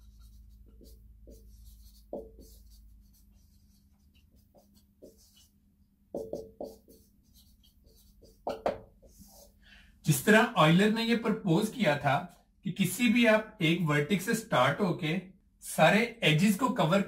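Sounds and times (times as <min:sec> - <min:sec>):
marker squeaking on whiteboard: 0:00.0 - 0:05.6, 0:06.2 - 0:09.6.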